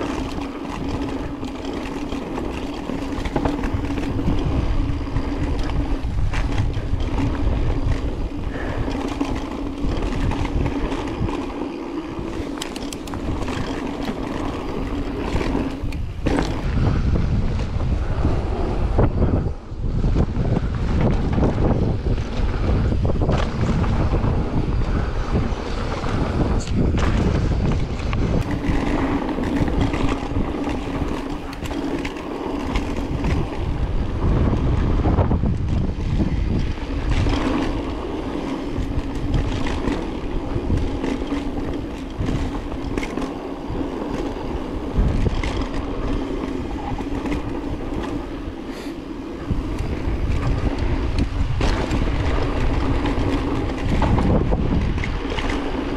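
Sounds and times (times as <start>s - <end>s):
bike clattering over bumps: 0.0s - 18.3s, 20.1s - 55.9s
tyres rumbling on dirt: 0.0s - 19.4s, 20.2s - 55.9s
wind buffeting microphone: 0.0s - 55.9s.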